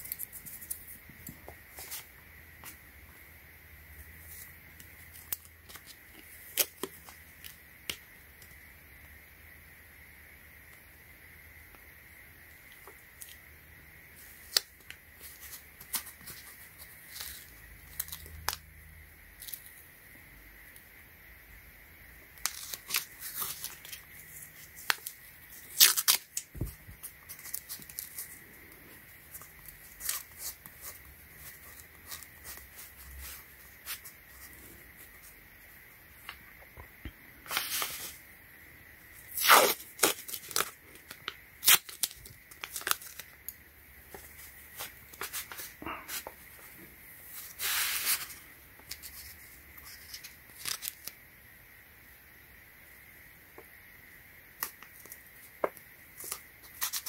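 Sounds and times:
tape unrolling rasps: 0:22.4 - 0:28.4, 0:39.2 - 0:43.4.

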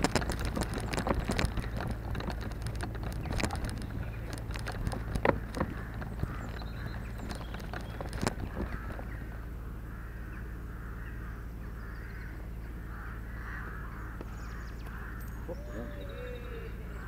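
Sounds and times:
wind rumble on microphone: 0:00.0 - 0:11.1
distant crows cawing: 0:04.3 - 0:17.0.

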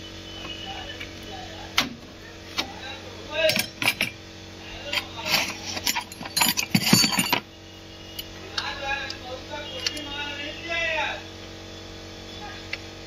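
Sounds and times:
steady low hum: 0:00.0 - 0:13.0
metal tools clinking on engine parts: 0:03.4 - 0:04.2, 0:04.8 - 0:07.5, 0:09.7 - 0:10.1.

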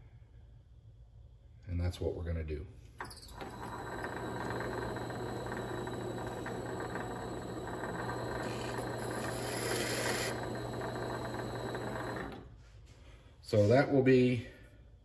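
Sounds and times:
lathe motor hum: 0:03.0 - 0:12.5
high hiss: 0:08.5 - 0:10.6.

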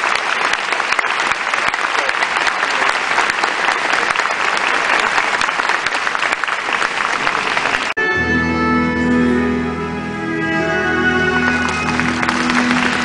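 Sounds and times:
crowd applauding: 0:00.0 - 0:08.0, 0:10.8 - 0:13.0
music over sound system: 0:08.0 - 0:13.0.

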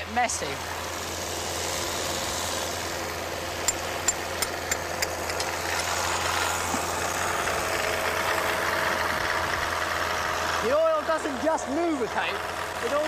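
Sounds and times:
car engine running: 0:00.0 - 0:13.0
sharp metallic taps: 0:03.6 - 0:05.6.

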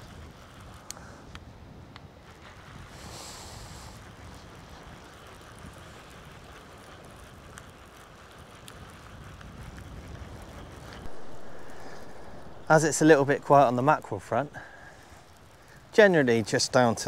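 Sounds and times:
wind buffeting microphone: 0:00.0 - 0:17.0
calm sea on shingle: 0:10.4 - 0:17.0.

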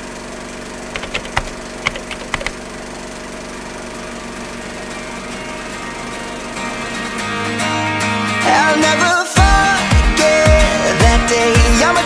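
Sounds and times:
sharp cracks: 0:01.0 - 0:02.6.

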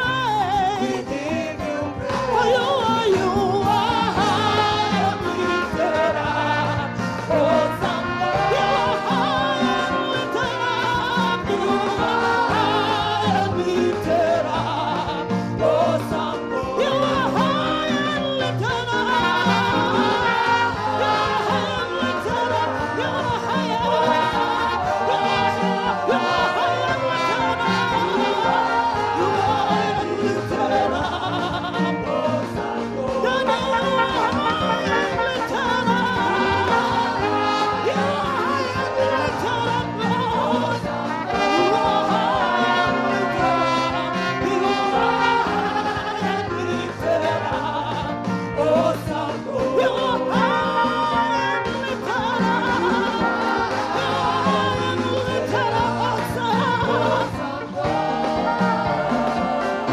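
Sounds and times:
band with bass line: 0:00.0 - 0:59.9
voices singing gospel music: 0:00.0 - 0:59.9.

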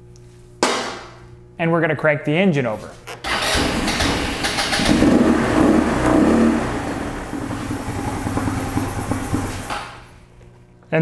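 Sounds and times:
scooter engine cranking and firing: 0:03.2 - 0:10.2.

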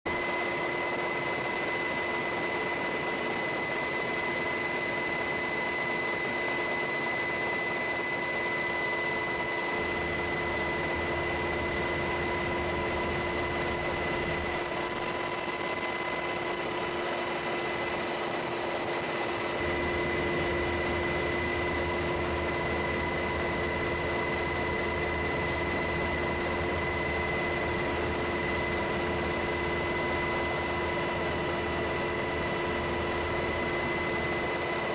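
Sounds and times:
aircraft engines droning: 0:00.1 - 0:34.9
steady whining tones: 0:00.1 - 0:34.9.

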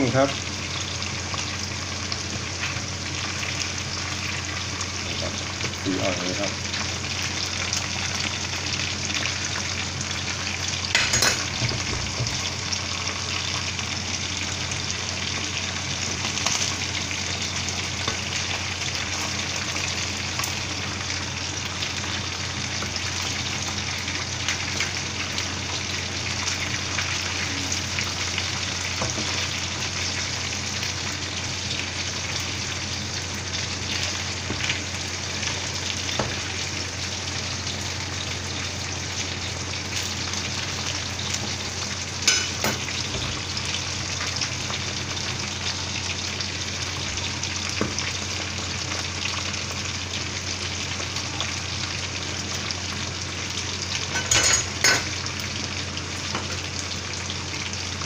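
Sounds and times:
chicken deep-frying in oil: 0:00.0 - 0:58.0.

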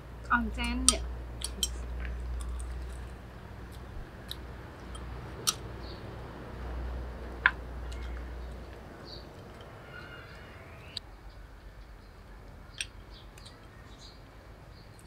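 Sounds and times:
low steady rumble: 0:00.0 - 0:14.8.

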